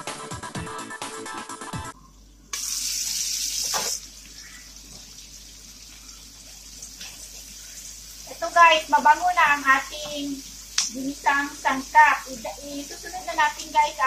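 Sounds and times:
vegetables sizzling in oil: 2.6 - 14.0.

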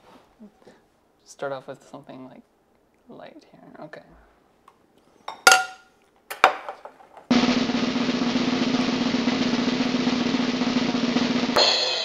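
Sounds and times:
cutlery clinking on plates: 5.2 - 6.8
snare drum roll: 7.3 - 12.0.

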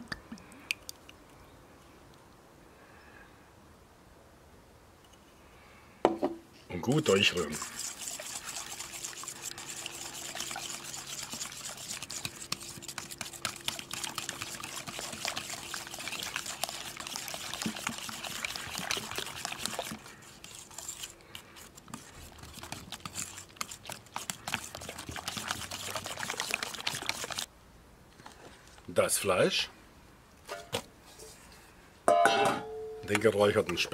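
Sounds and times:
whisk scraping metal bowl: 6.9 - 27.5, 33.1 - 33.9
liquid sloshing: 7.0 - 27.5.

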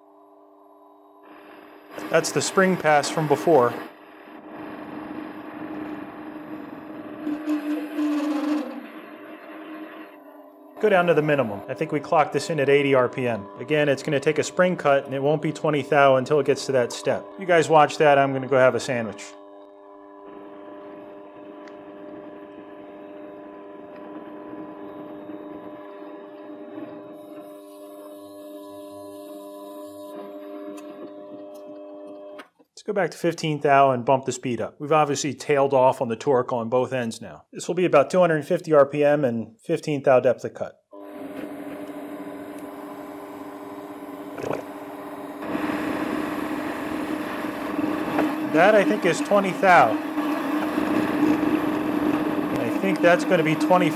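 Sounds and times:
lathe motor hum: 0.1 - 32.4, 41.0 - 53.9
metal cutting noise: 1.9 - 10.2, 10.8 - 19.2, 44.2 - 53.9.

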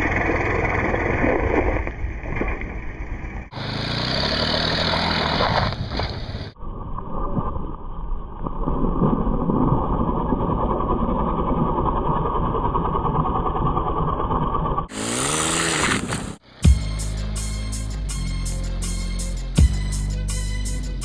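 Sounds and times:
small atv engine running: 0.0 - 1.6, 2.7 - 6.3, 10.8 - 16.4.

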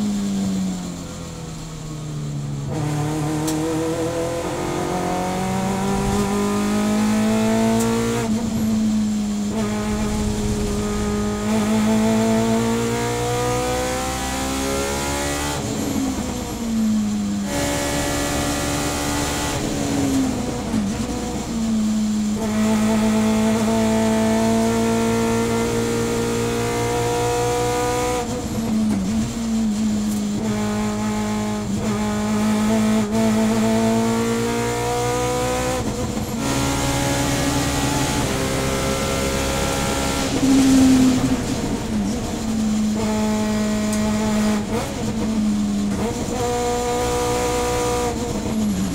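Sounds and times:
engine blipping on downshifts: 0.0 - 48.9
race car engine accelerating: 0.0 - 48.9.

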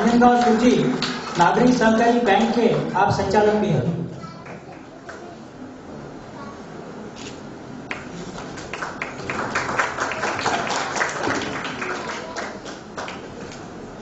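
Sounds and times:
audience applauding: 0.0 - 2.8, 7.9 - 13.6.

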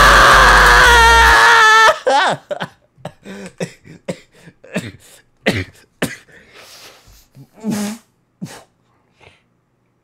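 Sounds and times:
man crying out: 0.0 - 2.7
harsh coughing breaths: 3.1 - 9.4.

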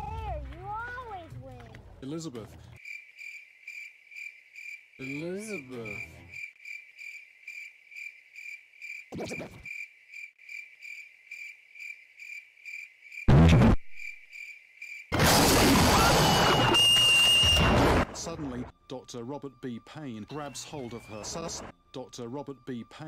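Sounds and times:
crickets chirping: 2.8 - 13.3, 14.0 - 15.1
brief high whistle: 16.0 - 17.8.

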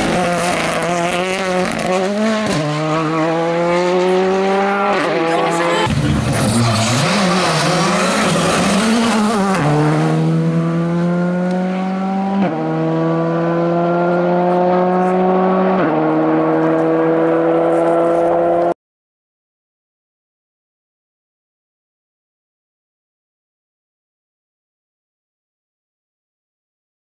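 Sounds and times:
rally car engine accelerating: 0.0 - 18.8.

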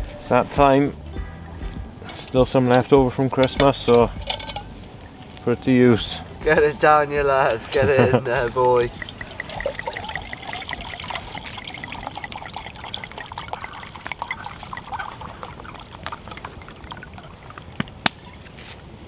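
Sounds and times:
campfire crackling: 0.0 - 19.0
liquid pouring into metal mug: 7.7 - 17.8.

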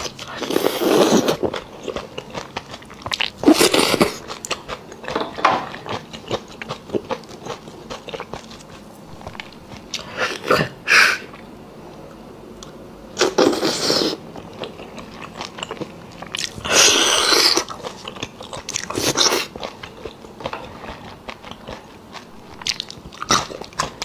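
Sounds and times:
wet chewing and lip-smacking: 14.4 - 24.0.

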